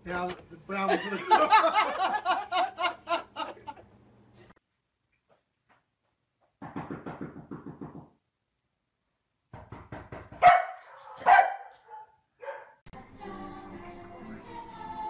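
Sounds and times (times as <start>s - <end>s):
dog barking: 10.4s - 12.8s
music: 12.9s - 15.0s.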